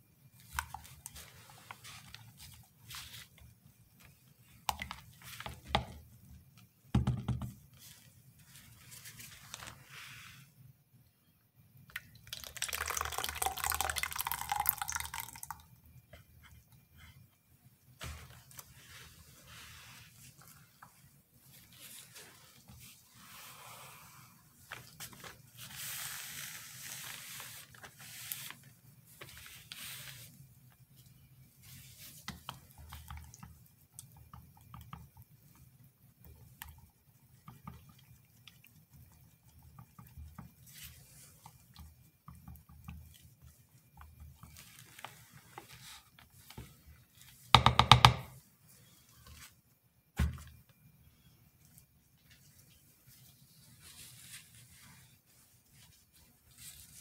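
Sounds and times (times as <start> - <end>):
knock on table: 7.0 - 7.6
cloth rubbing on gloved hands: 7.7 - 10.5, 18.0 - 30.4, 52.2 - 57.0
stirring batter in plastic cup: 12.1 - 15.6, 31.7 - 48.3.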